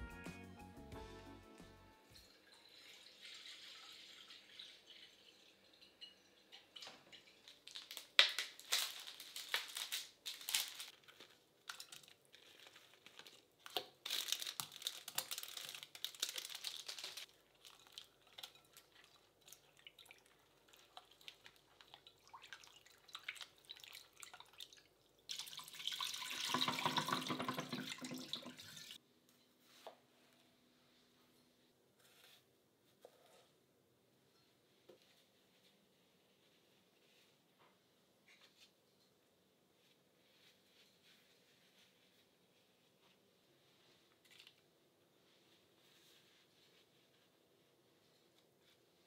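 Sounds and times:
water splashing in a glass bowl: 2.1 - 7.6, 22.0 - 29.0
running water: 19.0 - 29.0.

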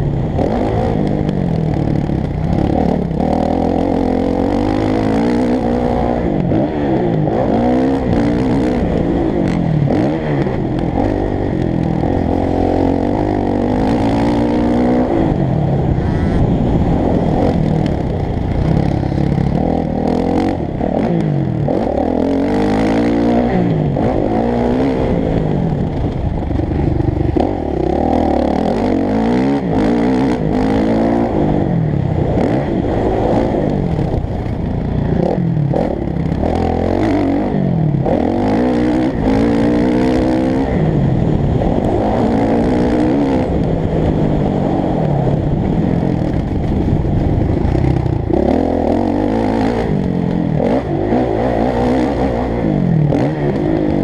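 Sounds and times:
motorbike engine revving: 0.0 - 54.0.

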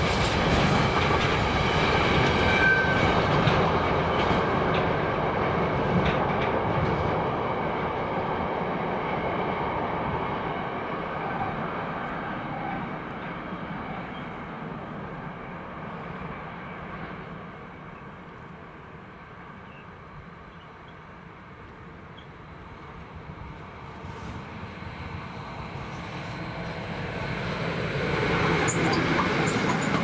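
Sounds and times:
train rumbling past: 0.0 - 30.0.

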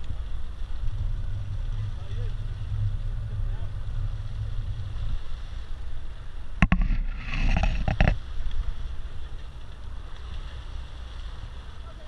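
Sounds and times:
low steady rumble: 0.0 - 12.0
knocks against boat: 6.6 - 8.2.

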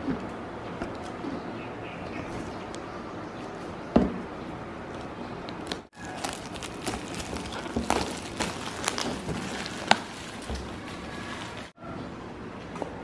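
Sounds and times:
plastic shrink-wrap crinkling: 5.6 - 11.8.

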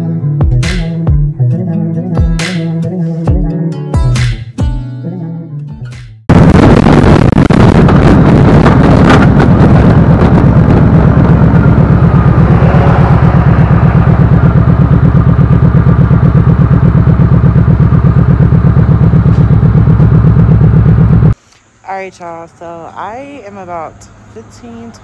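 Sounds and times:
wind rush on microphone: 6.3 - 14.5
motorcycle engine idling: 10.6 - 21.4.

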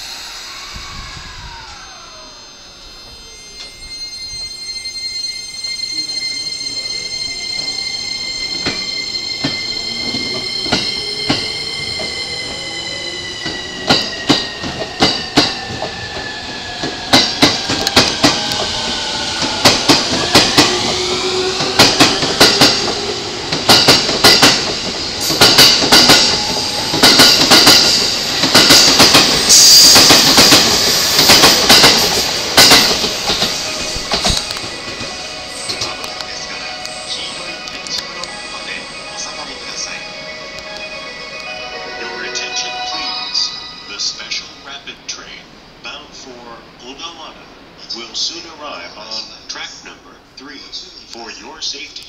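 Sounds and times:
electric train motors whining: 0.0 - 42.2
train wheels clacking: 6.2 - 40.0.

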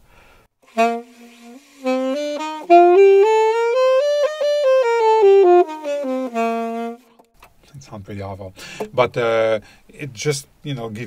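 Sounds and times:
saxophone playing a scale: 0.7 - 7.3.

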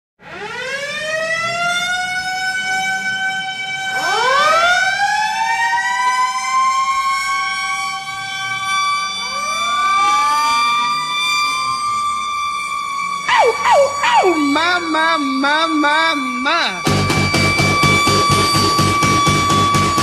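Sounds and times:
goal horn wailing: 8.6 - 20.0.

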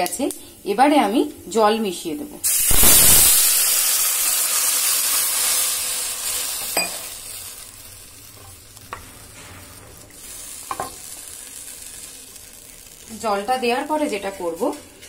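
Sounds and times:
hot oil hissing and sizzling: 2.4 - 15.0.

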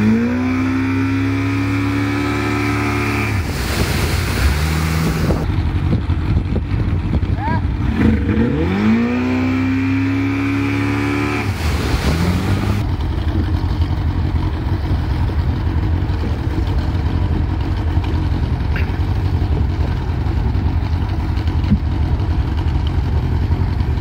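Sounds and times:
wind and water rushing: 0.0 - 13.6
outboard motor running: 0.0 - 24.0.

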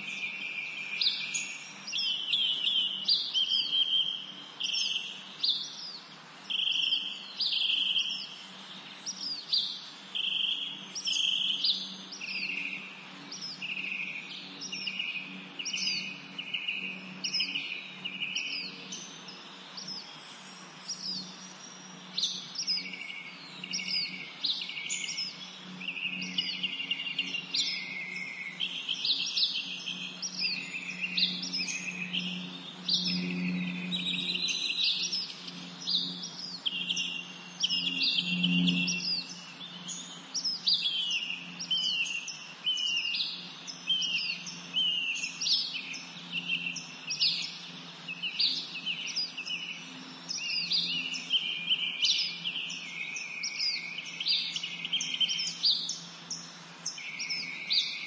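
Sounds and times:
birds calling: 0.0 - 58.0.

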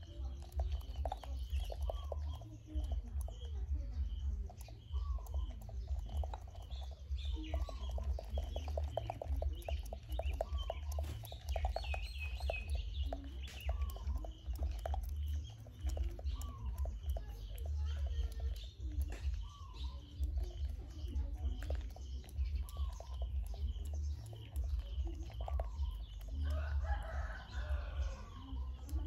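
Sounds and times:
small birds chirping: 0.0 - 29.0
steady low rumble: 0.0 - 29.0
chickens clucking: 19.0 - 28.9.

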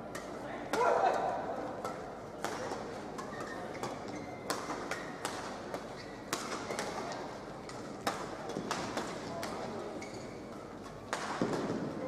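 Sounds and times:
rackets hitting shuttlecock: 0.0 - 12.0
shoes squeaking on court: 3.2 - 5.2, 5.8 - 7.0, 9.9 - 10.9.

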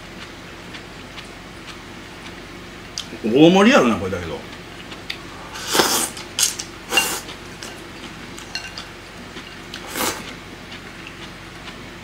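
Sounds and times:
man slurping noodles: 5.5 - 6.2, 9.8 - 10.4.

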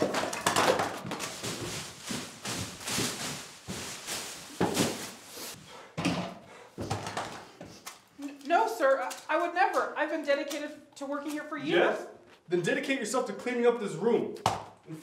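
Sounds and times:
objects swept off a table: 1.1 - 5.6.

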